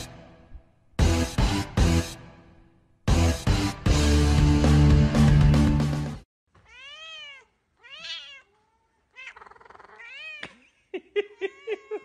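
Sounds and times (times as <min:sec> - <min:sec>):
background music: 0:00.0 - 0:06.2
cat meowing: 0:06.6 - 0:10.4.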